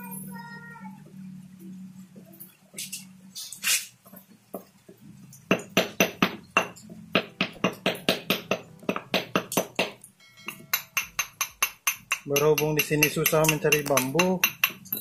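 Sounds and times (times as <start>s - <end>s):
hammer tapping on lead sinker: 5.5s - 15.0s.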